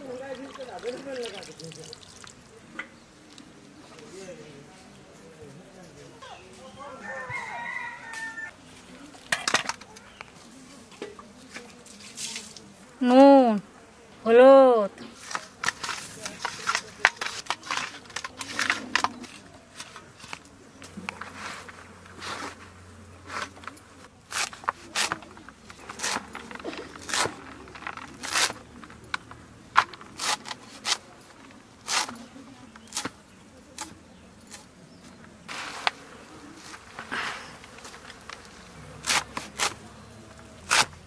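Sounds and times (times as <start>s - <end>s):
blade chopping leafy greens: 24.2s - 28.7s, 29.8s - 31.1s, 31.8s - 33.2s, 36.6s - 41.0s.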